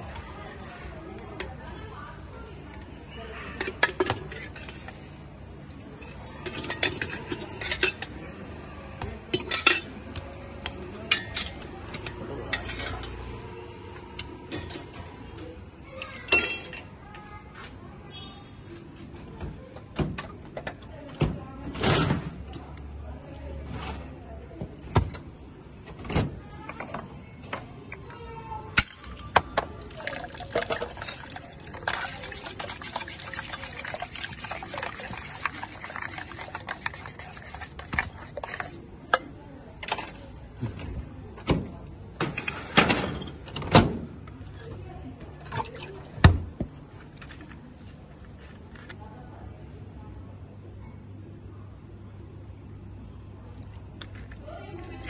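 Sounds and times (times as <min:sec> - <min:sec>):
glass and steel vessels clinking: 0:16.2 - 0:17.1, 0:29.9 - 0:37.6
soda fizzing in a pot: 0:29.8 - 0:38.7.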